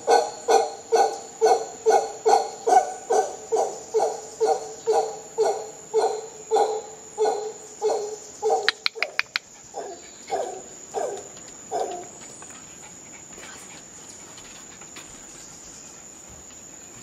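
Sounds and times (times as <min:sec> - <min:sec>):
howler monkey grunting calls: 0:00.0 - 0:16.3.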